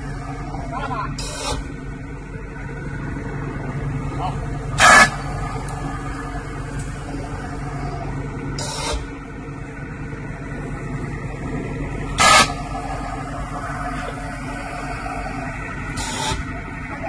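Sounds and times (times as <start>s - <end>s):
machine humming: 0.0s - 17.0s.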